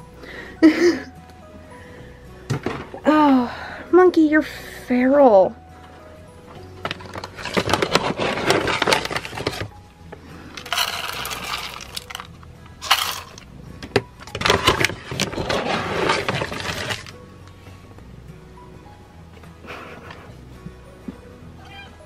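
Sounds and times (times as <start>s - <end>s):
kibble clattering into metal bowls: 6.8s - 9.7s, 10.6s - 13.4s, 14.2s - 17.1s.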